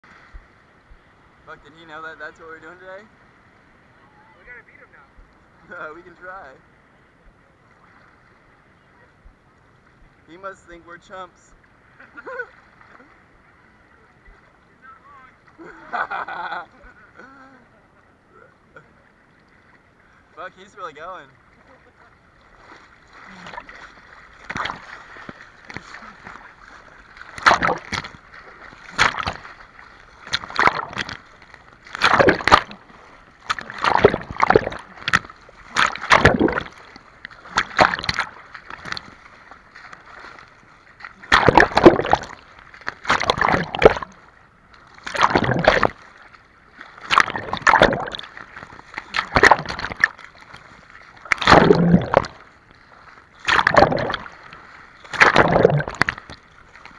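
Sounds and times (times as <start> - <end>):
seawater splashing in strokes: 20.7 - 56.9.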